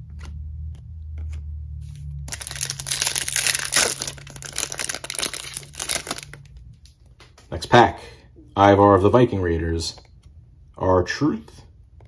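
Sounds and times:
foil wrapper crinkling and tearing: 2.3 - 6.5.

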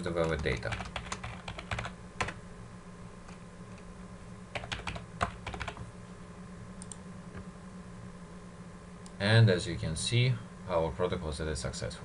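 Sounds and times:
typing on computer keyboard: 0.2 - 2.4, 4.6 - 5.8.

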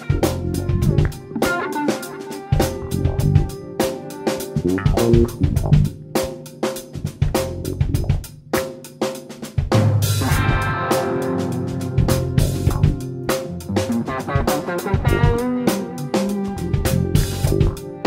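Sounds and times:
electric bass: 0.0 - 1.2, 2.6 - 3.5, 4.6 - 6.2, 7.0 - 8.2, 10.0 - 10.9, 11.6 - 17.8
electric guitar: 0.0 - 6.2, 10.2 - 18.0
drum kit played busily: 0.0 - 18.0.

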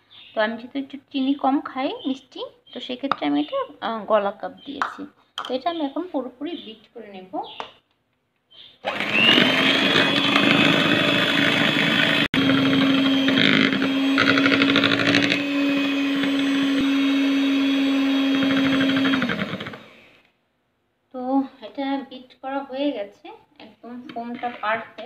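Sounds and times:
electric hand mixer whipping: 8.8 - 20.2.

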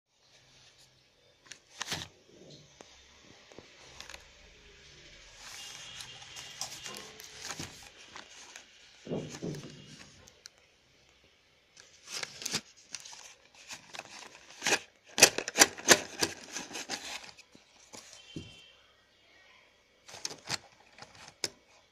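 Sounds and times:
pencils clicking and clattering: 3.6 - 4.3, 5.4 - 10.5, 11.8 - 18.3, 20.1 - 21.9
cardboard box rustling: 5.4 - 10.3, 11.8 - 18.5, 20.1 - 21.5.

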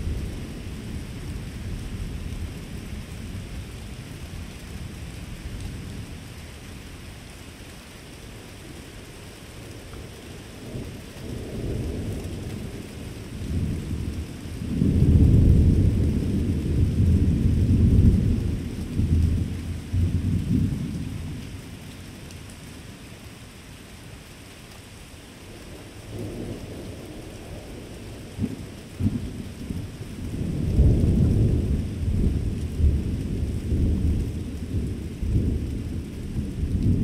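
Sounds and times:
steady rain hiss: 0.0 - 37.0
thunder rumbling and cracking: 10.6 - 21.7, 25.7 - 37.0.

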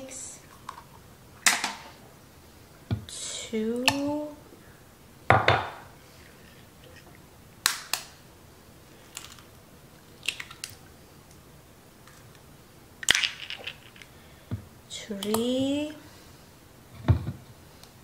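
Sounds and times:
eggs cracking: 9.0 - 11.4, 12.0 - 14.2.

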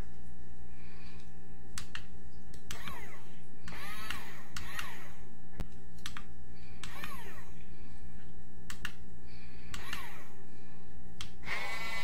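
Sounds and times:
toy electric gear motors humming: 2.6 - 5.3, 6.6 - 7.6, 9.4 - 10.5, 11.2 - 12.0.

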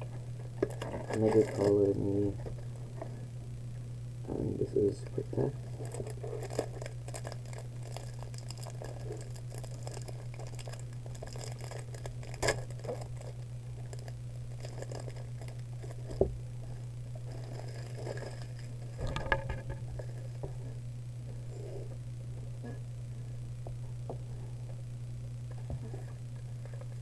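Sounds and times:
steady low hum: 0.0 - 27.0
foil pack crinkling and tearing: 0.4 - 2.4, 5.5 - 16.2, 17.1 - 20.4.

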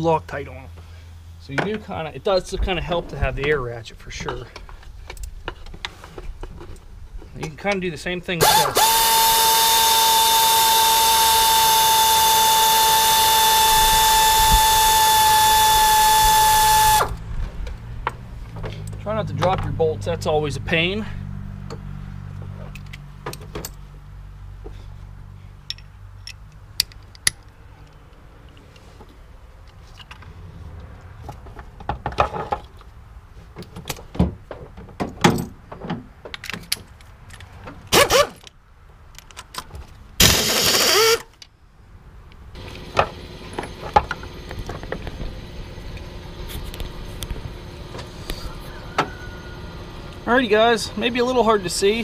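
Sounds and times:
pneumatic air ratchet bursts: 8.4 - 17.2, 37.9 - 38.4, 40.2 - 41.3
metal clicks of socket and bolts: 25.7 - 28.8, 36.3 - 37.5, 38.3 - 39.7.

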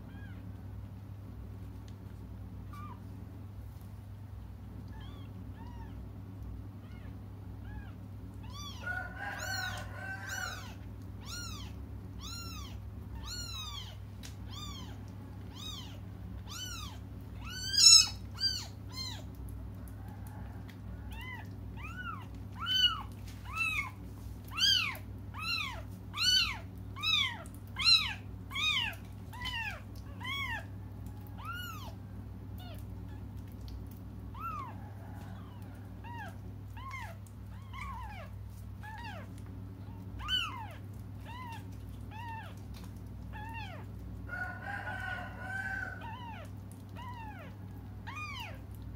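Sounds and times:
steady low hum: 0.0 - 48.9
kittens mewing: 4.8 - 19.5, 20.7 - 44.3, 45.4 - 48.8.

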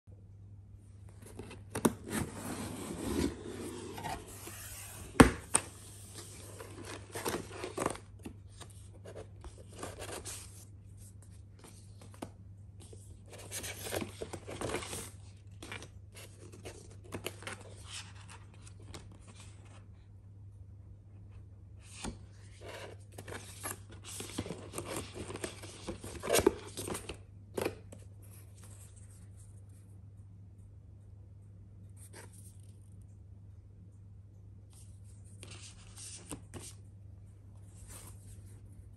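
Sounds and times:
cardboard and paper rustling: 1.1 - 19.9, 21.8 - 29.5.

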